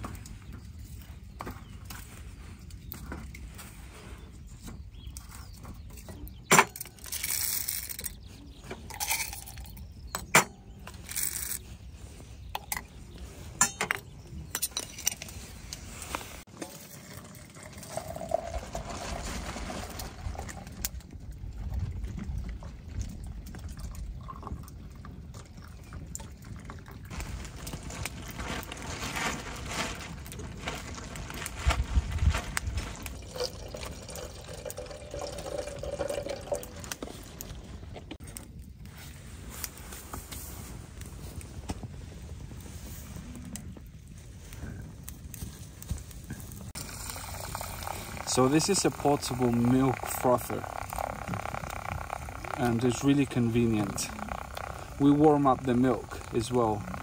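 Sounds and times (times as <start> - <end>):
hot water pouring: 8.9 - 9.8, 16.4 - 21.2, 23.2 - 38.2, 46.5 - 57.0.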